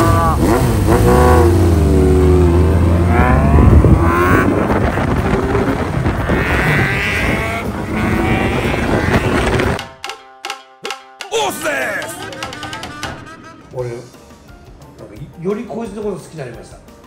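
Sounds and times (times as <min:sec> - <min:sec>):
motorcycle engine revving hard: 0:00.0 - 0:09.8.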